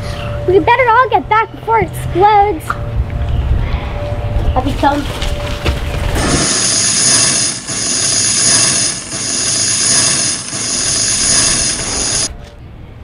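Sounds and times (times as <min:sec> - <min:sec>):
burning fuse hissing: 0:06.2 - 0:12.3.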